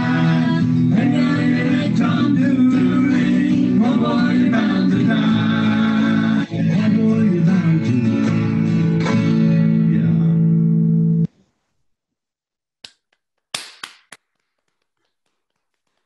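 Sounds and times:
voices singing: 0:00.0 - 0:08.2.

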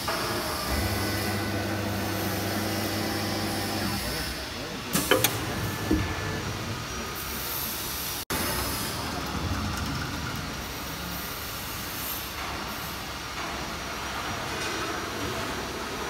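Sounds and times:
router machine hum and whir: 0:00.6 - 0:04.4.

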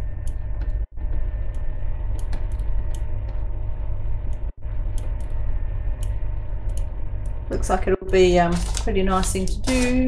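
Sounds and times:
steady low rumble: 0:00.0 - 0:10.0
paper crinkling: 0:08.5 - 0:09.8.

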